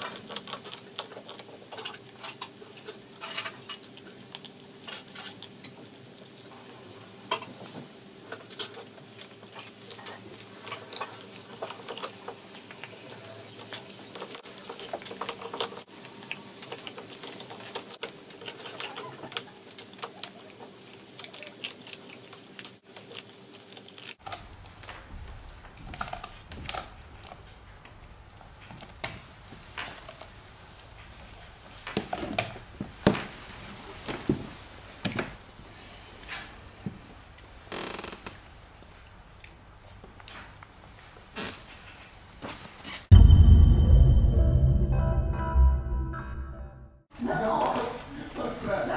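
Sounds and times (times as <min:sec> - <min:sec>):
teeth cracking on bone: 0:00.0 - 0:06.2
dog gnawing bone: 0:00.0 - 0:06.3, 0:13.6 - 0:24.8.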